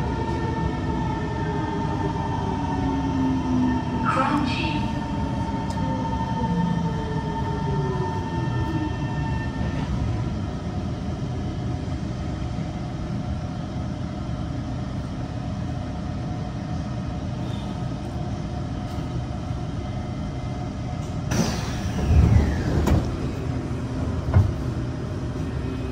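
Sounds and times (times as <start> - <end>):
metro car rumble and hum: 0.0 - 25.9
traction motor whine: 21.3 - 24.5.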